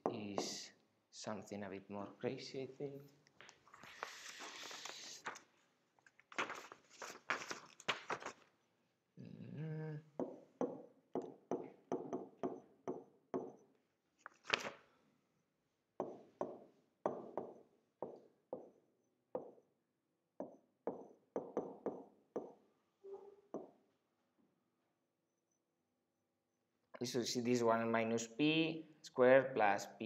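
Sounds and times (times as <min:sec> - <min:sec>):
stylus tapping on glass: 0:10.2 - 0:13.7, 0:16.0 - 0:18.8, 0:19.4 - 0:19.6, 0:20.4 - 0:22.6.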